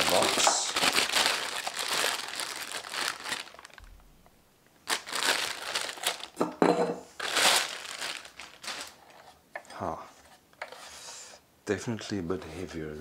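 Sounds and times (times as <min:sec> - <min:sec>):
plastic bag crinkling and rustling: 0:00.0 - 0:04.1, 0:04.8 - 0:06.5, 0:07.1 - 0:09.4.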